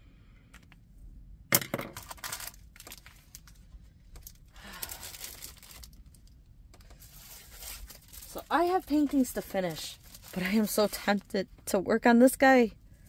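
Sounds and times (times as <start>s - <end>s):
plastic packaging crinkling: 1.9s - 11.3s.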